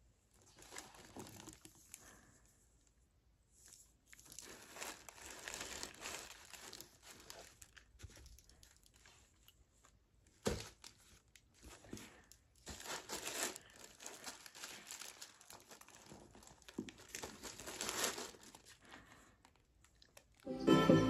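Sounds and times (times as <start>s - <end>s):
tissue paper rustling: 0.3s - 2.3s, 3.5s - 9.4s, 10.4s - 19.1s.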